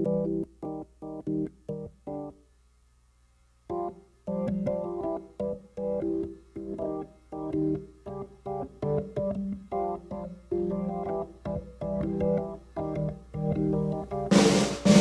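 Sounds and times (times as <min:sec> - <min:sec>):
organ playing staccato chords: 0:03.7 - 0:15.0.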